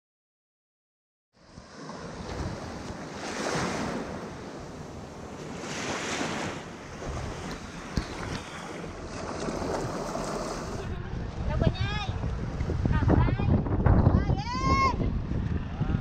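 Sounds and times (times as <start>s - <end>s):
sea waves washing up shore: 1.4s - 11.5s.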